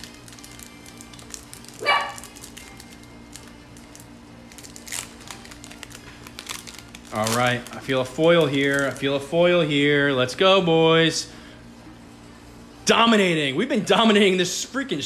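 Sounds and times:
foil card packs rustling: 0.0 - 10.4
dog barking: 1.8 - 2.3.

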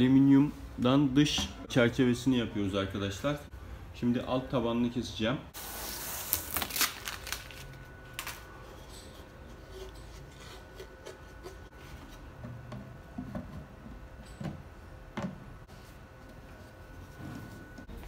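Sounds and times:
plastic sheet rustling: 5.6 - 8.5.

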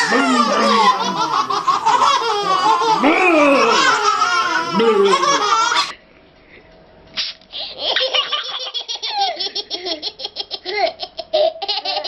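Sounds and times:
babies laughing: 0.0 - 5.9, 7.6 - 12.0
toddlers laughing hard: 0.0 - 5.9.

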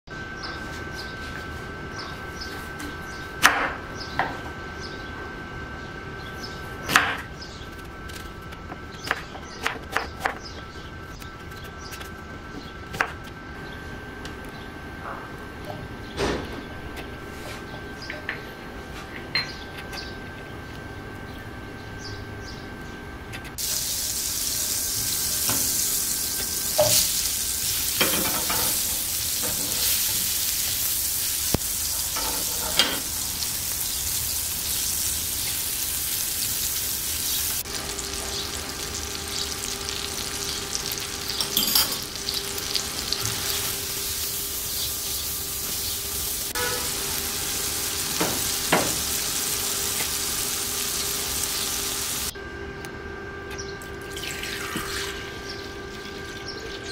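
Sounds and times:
butter and apple sizzling in pan: 23.6 - 52.3.

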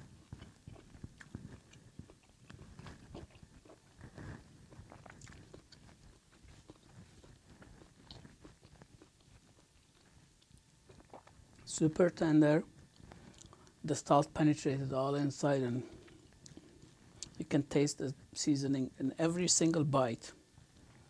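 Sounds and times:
person chewing: 0.0 - 11.7, 12.8 - 13.8, 15.8 - 17.4.

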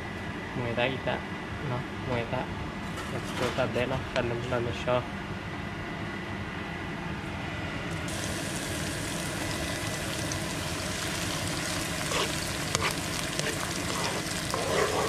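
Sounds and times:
paste sizzling in hot oil: 8.1 - 15.0.

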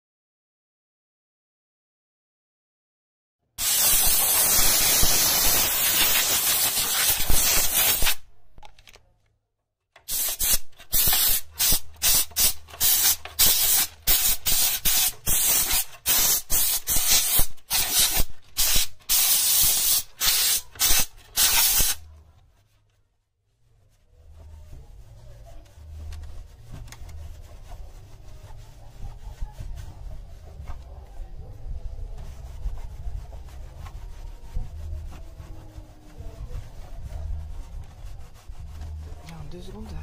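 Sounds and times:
steam cleaner hissing: 3.6 - 8.2, 10.1 - 22.0.

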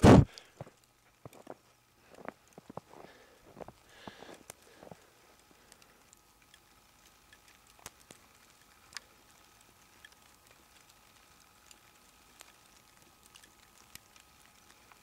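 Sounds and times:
light ticks: 4.4 - 15.0.

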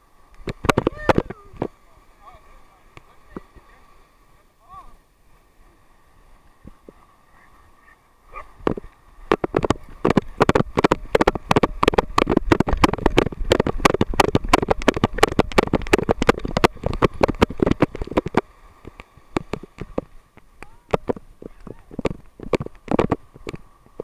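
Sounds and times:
wind rumbling on microphone: 0.0 - 24.0
camera knocking and rattling: 8.6 - 24.0.

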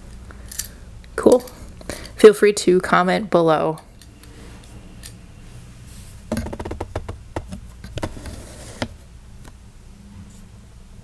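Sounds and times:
sharp taps and knocks: 6.3 - 8.1.

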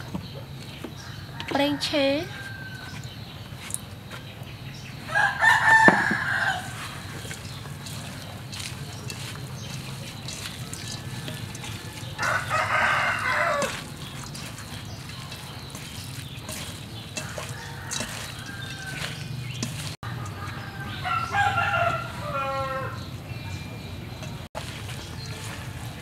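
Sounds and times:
rooster crowing: 1.0 - 3.0, 5.1 - 7.0, 10.4 - 13.9, 16.5 - 23.2.

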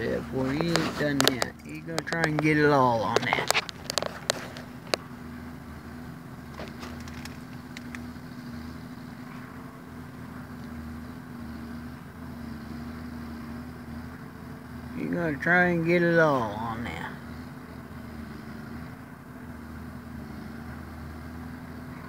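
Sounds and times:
vehicle engine idling: 0.0 - 22.0
faint clicks: 6.7 - 8.1.

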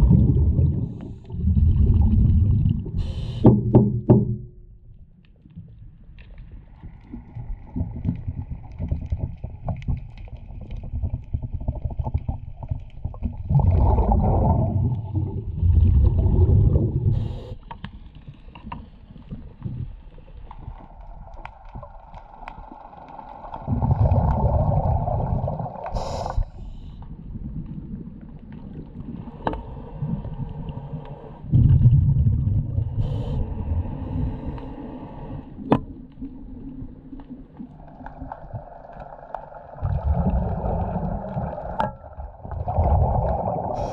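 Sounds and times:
murky underwater background: 0.0 - 43.9
underwater surges of water and bubbles: 0.0 - 43.9.

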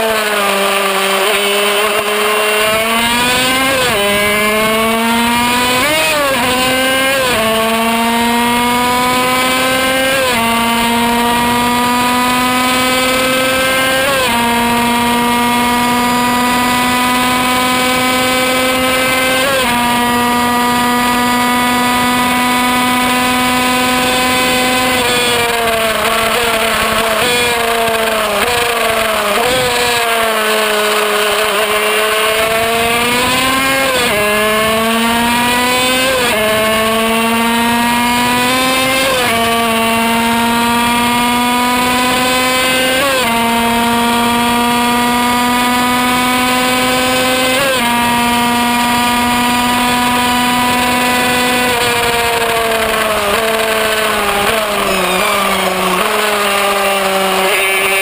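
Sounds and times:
racing engine screaming: 22.3 - 58.0.

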